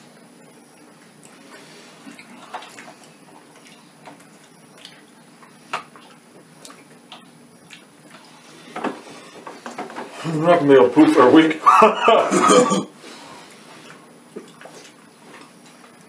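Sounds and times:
people chewing: 0:00.4 - 0:10.4, 0:11.6 - 0:16.0.

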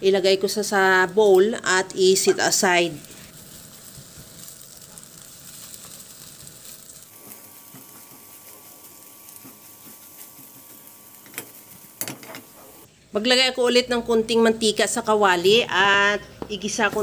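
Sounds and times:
eggs sizzling in a pan: 0:00.1 - 0:13.0
spatula scraping a pan: 0:03.8 - 0:12.9.

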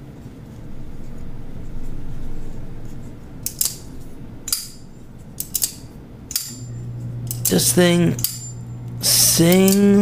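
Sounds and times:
metallic snaps with ring: 0:05.4 - 0:08.7, 0:09.5 - 0:09.9.

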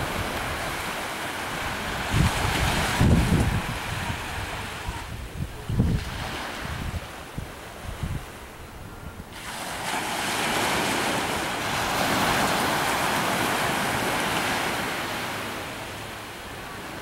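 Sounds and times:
wave breaking and washing in: 0:00.0 - 0:17.0.

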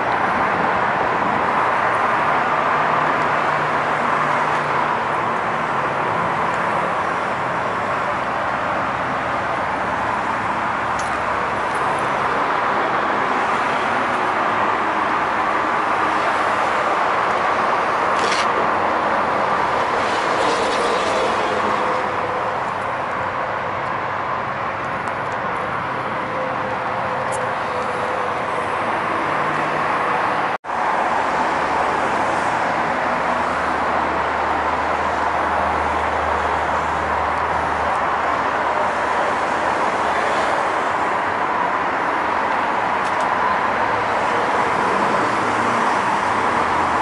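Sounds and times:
road traffic roar: 0:00.0 - 0:47.0.

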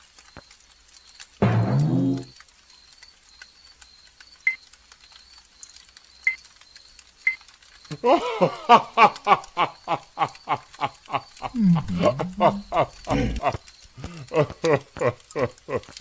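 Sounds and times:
campfire crackling: 0:00.0 - 0:01.6, 0:02.2 - 0:16.0
cartoon voice laughing: 0:11.4 - 0:13.6.

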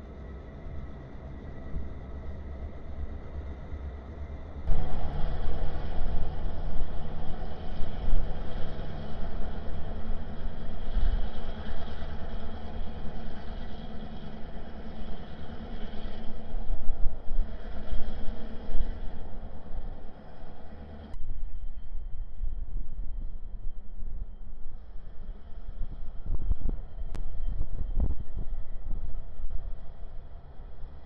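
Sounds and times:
locomotive engine rumble: 0:00.0 - 0:21.2.

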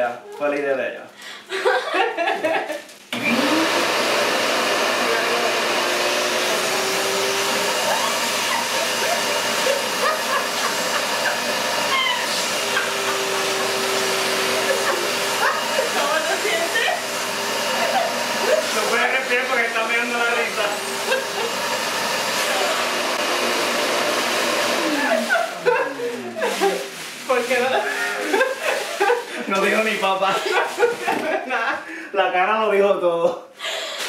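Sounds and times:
shop vacuum switching on: 0:03.1 - 0:25.4
shop vacuum running: 0:03.1 - 0:31.4.

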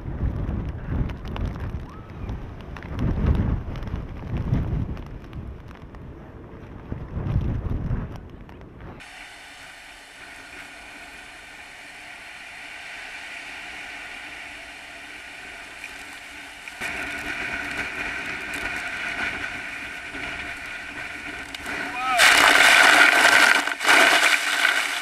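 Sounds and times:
wind: 0:00.0 - 0:25.0
waves pounding a cliff: 0:09.0 - 0:25.0.

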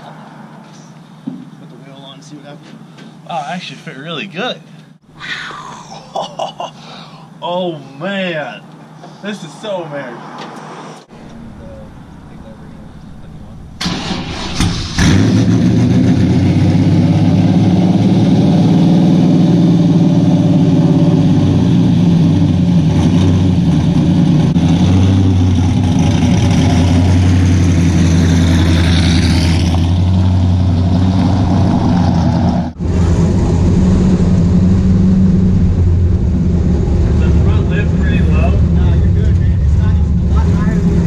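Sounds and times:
truck engine starting and running: 0:11.0 - 0:41.0.

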